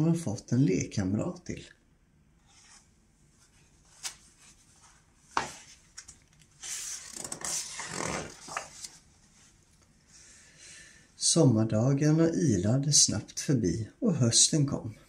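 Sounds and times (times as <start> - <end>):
paper page rustling: 3.4 - 9.1.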